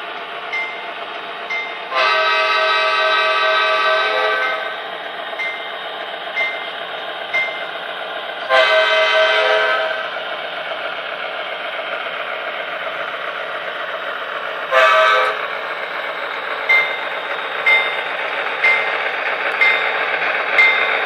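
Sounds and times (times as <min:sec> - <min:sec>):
model locomotive engine sound: 0:00.0 - 0:21.0
locomotive horn blast: 0:01.9 - 0:04.8, 0:08.5 - 0:10.0, 0:14.7 - 0:15.4.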